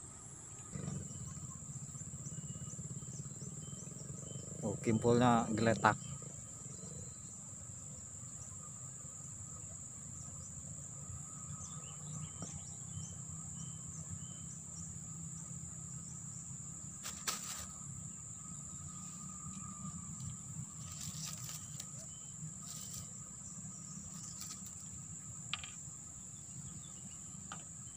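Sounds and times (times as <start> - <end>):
high-pitched insect drone: 0.0 - 27.9.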